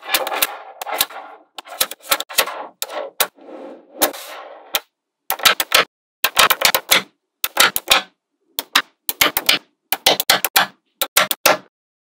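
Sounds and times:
magnetic balls clicking together: 4.8s - 11.6s.

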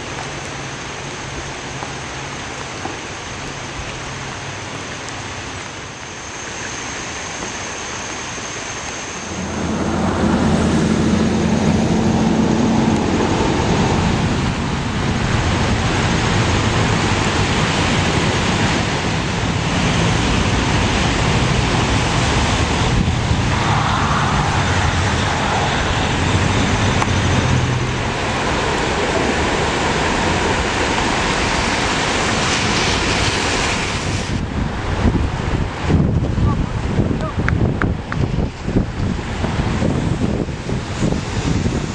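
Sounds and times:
creek rushing: 0.0s - 34.3s
road traffic engine hum: 6.4s - 35.8s.

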